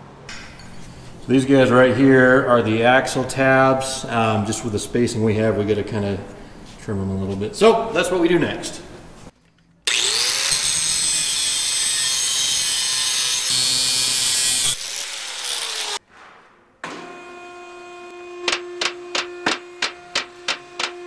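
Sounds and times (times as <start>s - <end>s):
angle grinder cutting steel: 9.9s - 16.0s.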